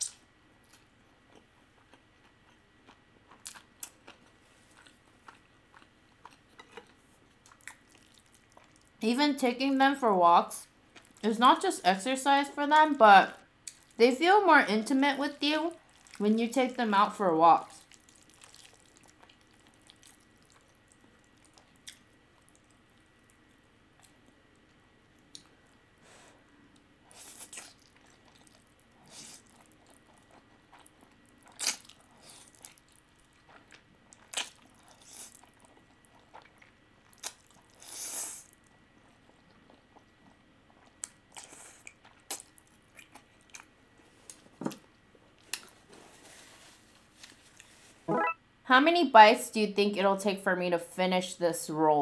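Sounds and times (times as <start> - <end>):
noodles being slurped and chewed: 1.4 - 9.0, 15.8 - 16.2, 17.8 - 22.7, 27.1 - 43.7.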